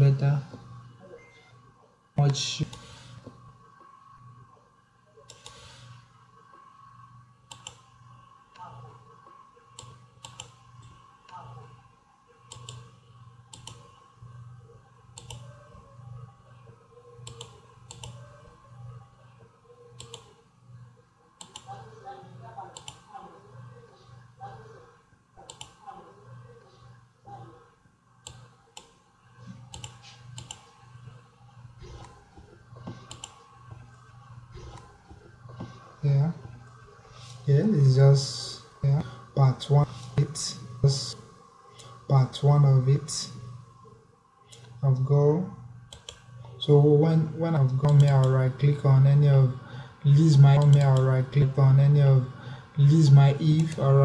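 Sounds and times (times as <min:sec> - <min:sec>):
low electrical hum: 0:00.0 - 0:54.0
computer mouse clicking: 0:05.2 - 0:05.9, 0:07.4 - 0:08.0, 0:09.7 - 0:11.0, 0:12.4 - 0:14.0, 0:15.1 - 0:15.8, 0:17.2 - 0:18.5, 0:20.0 - 0:20.4, 0:21.4 - 0:21.8, 0:22.7 - 0:23.1, 0:25.4 - 0:25.9, 0:28.2 - 0:29.0, 0:29.6 - 0:31.2, 0:31.8 - 0:33.9, 0:34.5 - 0:35.8, 0:45.9 - 0:46.3, 0:47.8 - 0:48.4, 0:50.5 - 0:51.2, 0:53.5 - 0:53.9.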